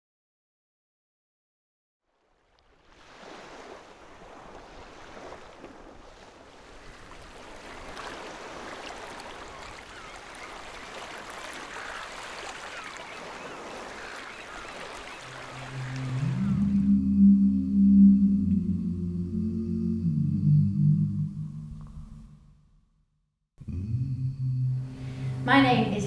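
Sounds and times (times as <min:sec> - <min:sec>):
water washing: 0:03.0 - 0:18.8.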